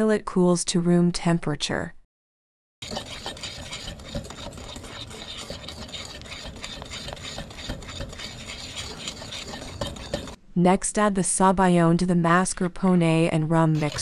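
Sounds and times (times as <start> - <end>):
whisk scraping against bowl: 2.8 - 10.4, 13.7 - 14.0.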